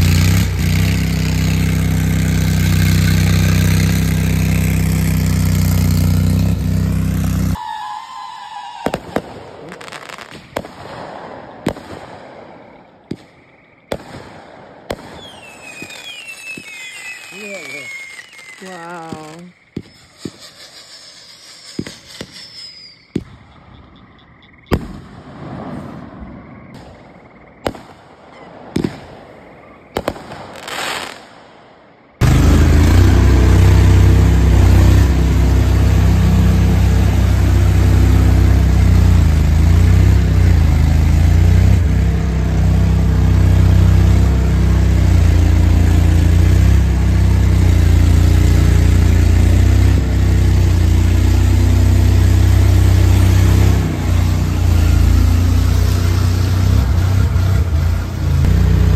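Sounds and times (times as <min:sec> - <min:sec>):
vehicle engine running loudly: 0:00.0 - 0:07.6, 0:32.2 - 0:58.9
fireworks bangs and pops: 0:00.0 - 0:24.0, 0:24.6 - 0:57.7.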